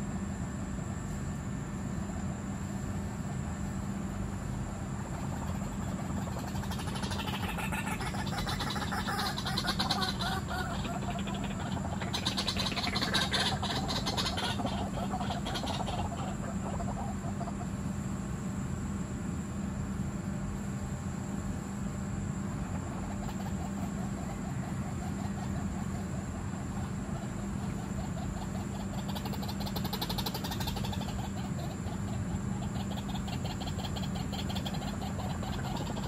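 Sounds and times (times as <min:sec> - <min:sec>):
low background hum: 0:00.0 - 0:36.0
bird croaking call: 0:05.0 - 0:17.7, 0:22.6 - 0:36.0.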